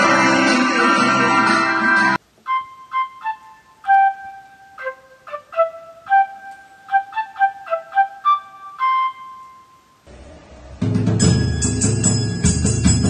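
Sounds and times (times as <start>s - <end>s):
flute-like melody: 0.0s - 10.1s.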